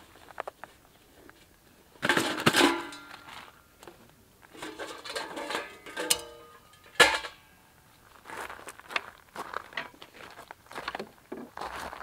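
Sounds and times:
steel parts clanking and scraping: 2.0s - 3.4s, 4.5s - 7.6s.

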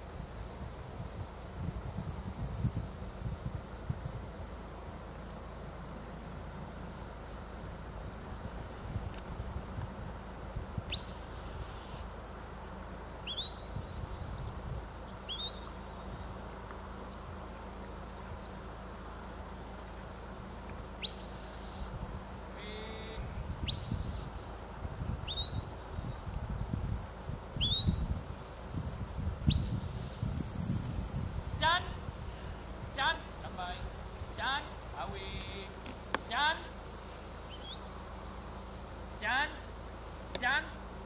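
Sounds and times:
wind rumble on microphone: 0.0s - 5.2s, 6.2s - 19.4s, 20.0s - 36.3s
shepherd's whistles: 10.9s - 13.6s, 21.0s - 22.7s, 23.7s - 25.7s, 29.5s - 31.0s
short rising whistle chirps: 10.9s - 13.7s, 21.0s - 22.8s, 23.6s - 25.7s, 27.6s - 28.0s, 29.5s - 31.1s.

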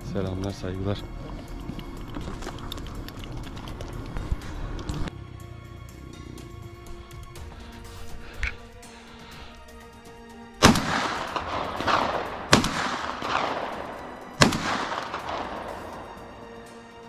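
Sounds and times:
background music: 0.0s - 17.0s
shotgun shots with rolling echo: 10.6s - 16.7s.

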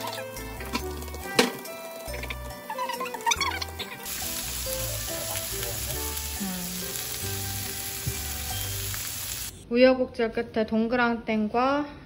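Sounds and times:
food sizzling in frying pan: 0.0s - 9.6s.

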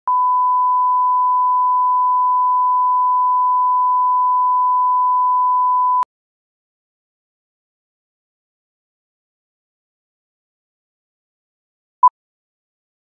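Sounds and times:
steady line-up tone beep: 0.1s - 6.1s.

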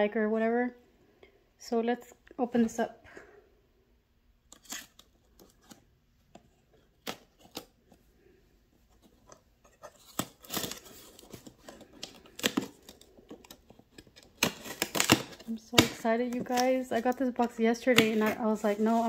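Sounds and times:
hands handling cardboard box: 8.8s - 19.0s
knife slicing packing tape: 14.4s - 16.0s.

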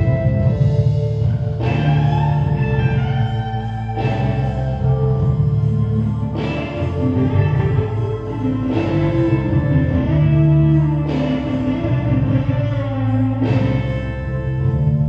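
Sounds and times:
music with low bass and held chords: 0.0s - 15.0s.

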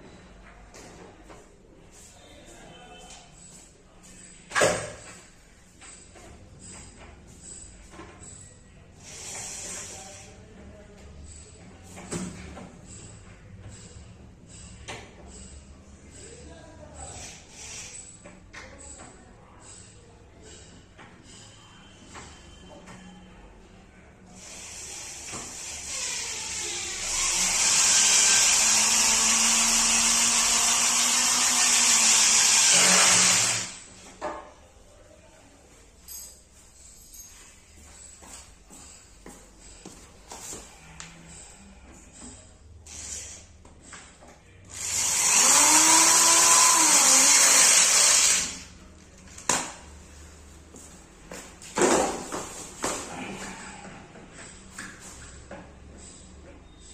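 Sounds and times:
power drill driving a screw: 9.0s - 9.9s, 24.4s - 33.8s, 42.9s - 43.4s, 44.7s - 48.6s
small electric motor hissing: 9.0s - 10.3s, 24.4s - 33.8s, 42.8s - 43.5s, 44.8s - 48.7s.

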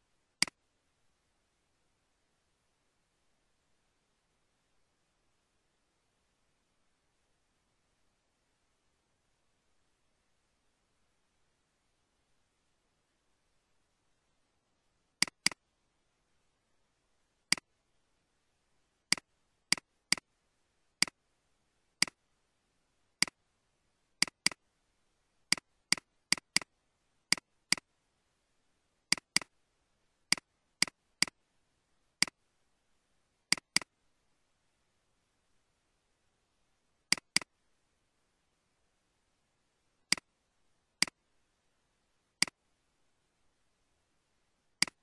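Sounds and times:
computer mouse clicking: 15.2s - 15.6s, 17.5s - 17.7s, 19.1s - 20.3s, 22.0s - 22.2s, 24.2s - 24.6s, 25.5s - 26.7s, 27.3s - 27.9s, 29.1s - 29.5s, 30.3s - 31.4s, 33.5s - 33.9s, 37.1s - 37.5s, 40.1s - 40.3s, 44.8s - 45.0s.

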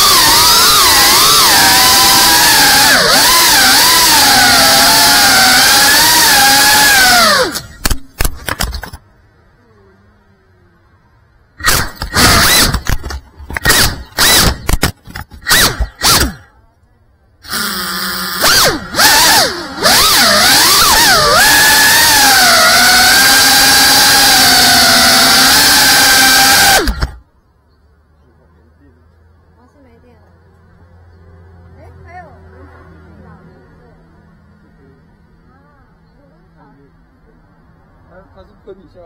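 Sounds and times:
quadcopter motors whining: 0.0s - 9.0s, 11.6s - 16.6s, 17.4s - 27.2s.

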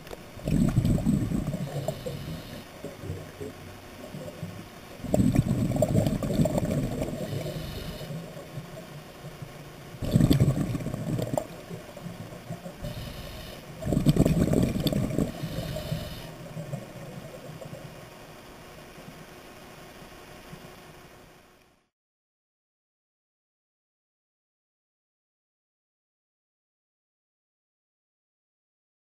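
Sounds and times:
exhaled bubbles gurgling underwater: 0.0s - 18.9s
regulator hiss: 0.0s - 21.6s.

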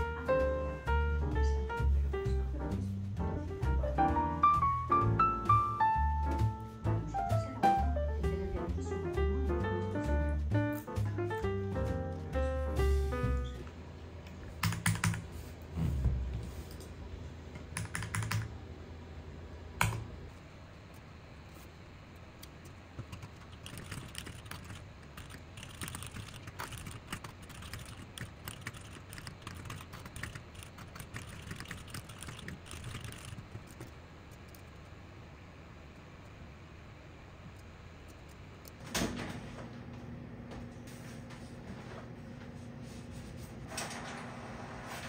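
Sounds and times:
mechanical keyboard typing: 14.6s - 15.3s, 17.7s - 18.5s, 23.0s - 33.9s.

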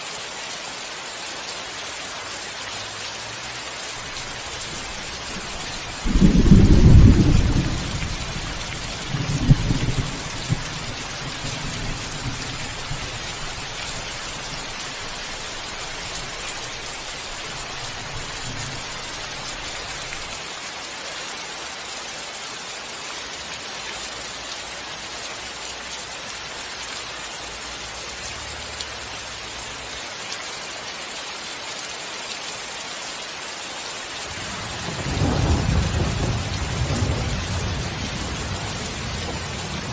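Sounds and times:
rain hissing: 0.0s - 31.7s, 32.4s - 39.9s
thunder rumbling: 4.0s - 14.9s, 34.4s - 39.9s.

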